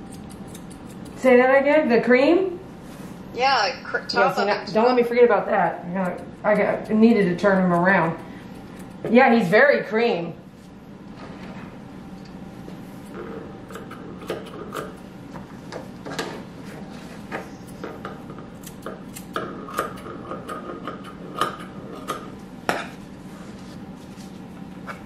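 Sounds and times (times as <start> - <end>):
grooming shears snipping: 0.0 - 1.8, 5.8 - 9.6, 18.6 - 22.3
steady low hum: 0.0 - 25.0.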